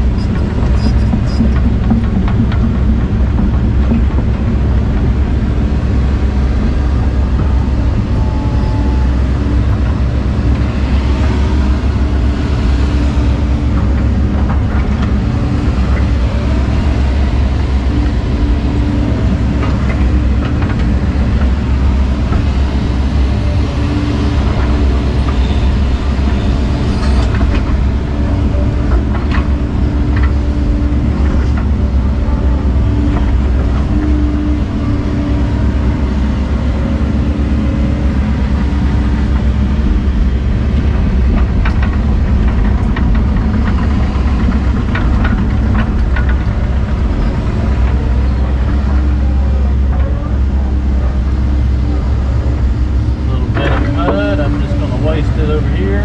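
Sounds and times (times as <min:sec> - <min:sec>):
heavy diesel machine droning: 0:00.0 - 0:56.0
machine clanks and knocks: 0:00.2 - 0:05.6, 0:24.4 - 0:32.0, 0:40.7 - 0:48.8.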